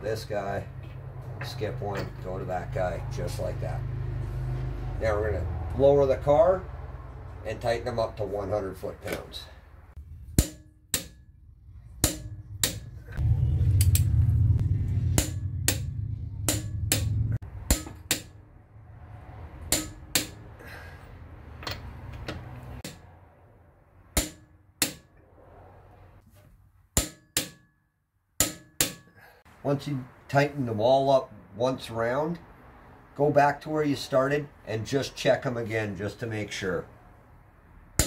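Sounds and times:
loud low hum: 11.3 - 21.4.

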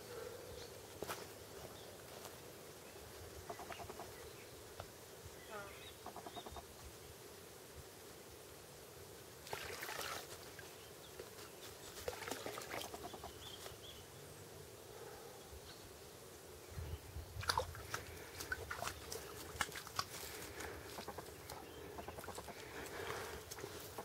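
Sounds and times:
water splashing and trickling: 9.4 - 11.3, 12.0 - 13.0, 17.3 - 24.0.

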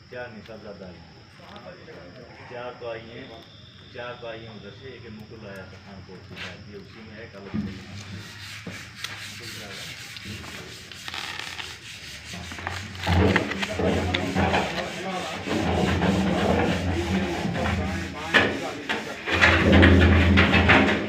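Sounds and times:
paper and cardboard rustling: 7.6 - 20.7.

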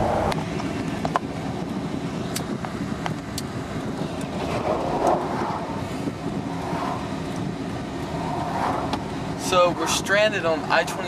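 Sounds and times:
highway traffic passing: 0.0 - 11.0.

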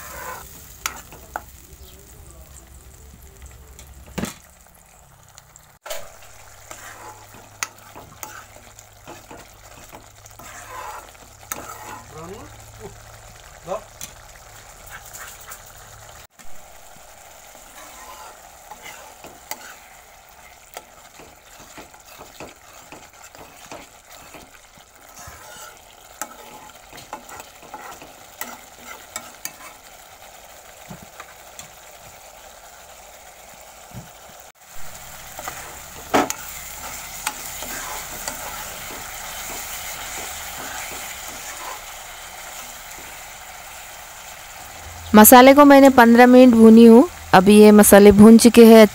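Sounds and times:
spoon scraping a pan: 0.0 - 1.6, 5.9 - 12.2, 17.5 - 30.2, 35.0 - 43.2
paste sizzling in oil: 0.0 - 48.9.

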